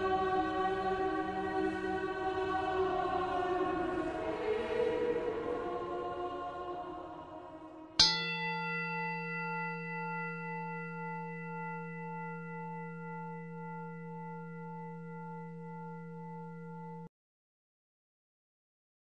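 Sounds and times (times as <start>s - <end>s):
bell ringing: 8.0s - 17.1s.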